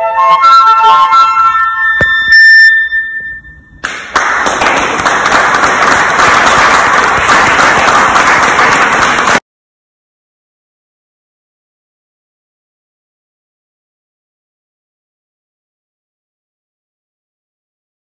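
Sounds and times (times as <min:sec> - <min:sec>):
flute playing: 0:00.0 - 0:03.8
audience applause: 0:03.8 - 0:09.4.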